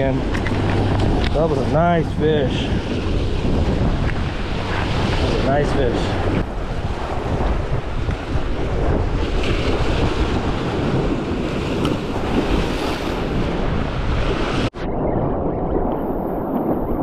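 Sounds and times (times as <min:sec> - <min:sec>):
waves breaking against rocks: 0:00.0 - 0:14.7
wind buffeting microphone: 0:00.0 - 0:17.0.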